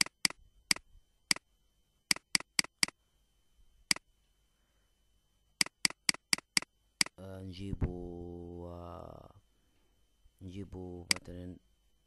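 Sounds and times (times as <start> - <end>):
computer mouse clicking: 0.0 - 1.4, 2.1 - 3.0, 5.6 - 7.2, 11.1 - 11.3.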